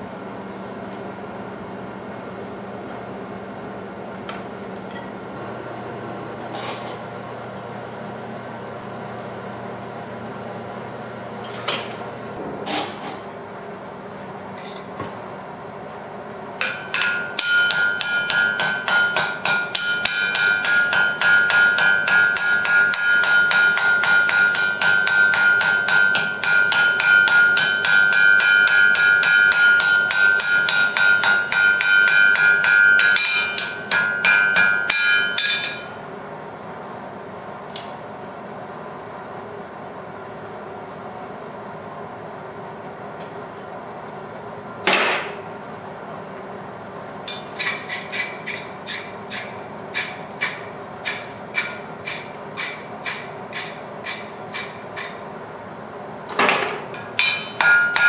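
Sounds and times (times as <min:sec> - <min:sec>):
low steady hum: 0:09.7 - 0:41.6
hammer striking iron on anvil: 0:16.6 - 0:36.4, 0:47.3 - 0:55.3, 0:56.3 - 0:58.0.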